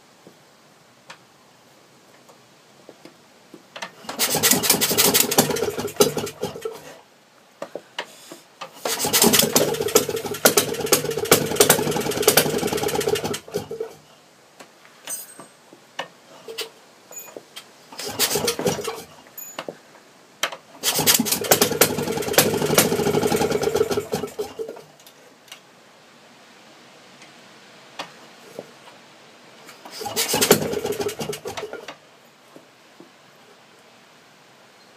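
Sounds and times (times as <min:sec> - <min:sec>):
two-stroke engine rattling: 0:04.1 - 0:06.8, 0:08.8 - 0:14.0, 0:18.0 - 0:19.1, 0:20.8 - 0:24.8, 0:29.9 - 0:31.9.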